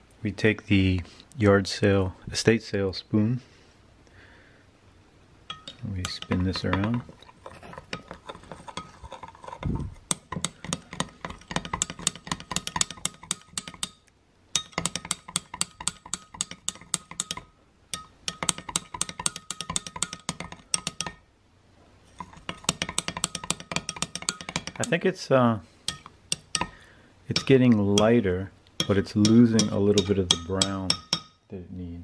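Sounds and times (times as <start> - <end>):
metal spoon clinking against glass: 5.5 - 7.1, 14.6 - 21.2, 22.2 - 24.9, 25.9 - 28.1, 28.8 - 31.4.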